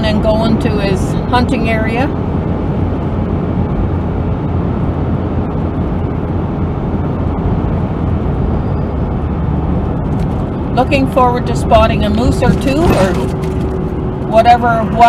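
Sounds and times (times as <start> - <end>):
road and engine rumble in cab: 0.0 - 15.0.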